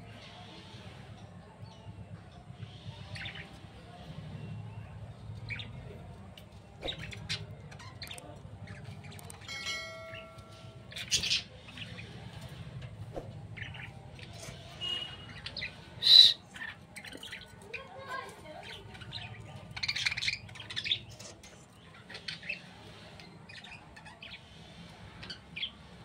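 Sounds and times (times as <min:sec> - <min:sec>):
budgerigars chirping: 0:14.8 - 0:17.4.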